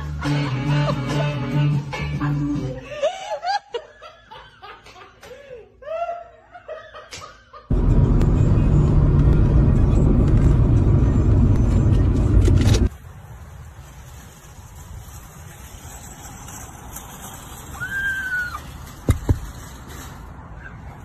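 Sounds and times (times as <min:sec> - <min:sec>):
people laughing: 0:02.2 - 0:07.7
loud rumble inside a car: 0:07.7 - 0:12.9.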